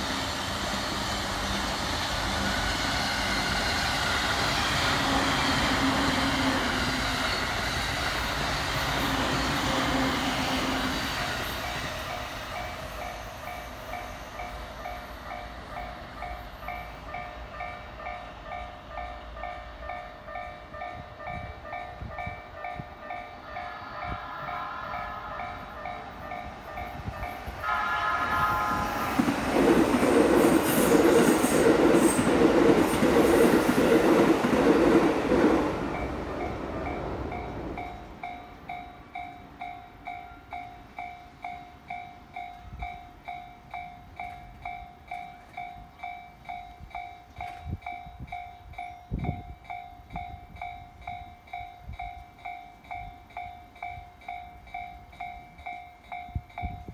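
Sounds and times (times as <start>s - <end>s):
train running over rails: 0.0s - 56.9s
train horn: 4.9s - 6.7s, 23.4s - 26.4s, 27.0s - 29.5s.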